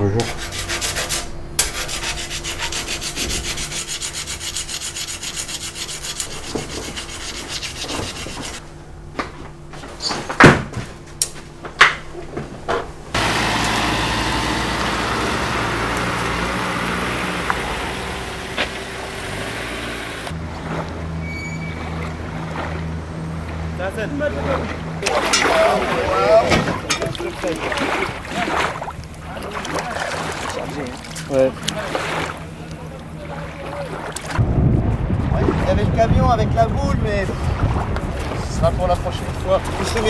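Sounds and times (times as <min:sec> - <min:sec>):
file rasping on steel: 0:00.2 - 0:08.6
vehicle running with low hum: 0:13.0 - 0:25.1.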